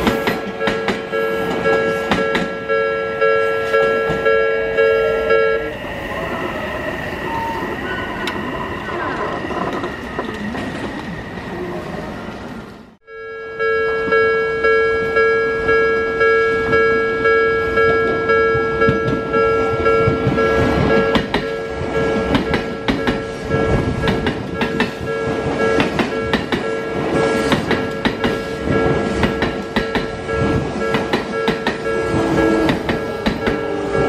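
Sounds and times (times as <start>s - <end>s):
train wheels clacking over rail joints: 0.0s - 2.6s, 18.6s - 21.6s, 22.2s - 34.0s
level-crossing warning bell ringing: 0.0s - 9.3s, 13.0s - 34.0s.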